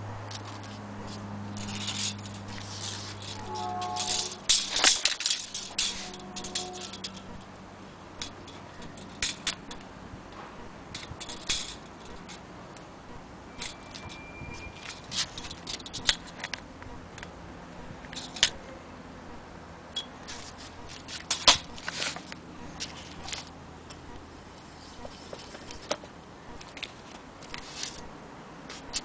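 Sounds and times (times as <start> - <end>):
handling clicks and rattles: 0.3 - 7.6, 8.2 - 12.9, 13.6 - 17.3, 18.0 - 18.6, 25.0 - 28.1.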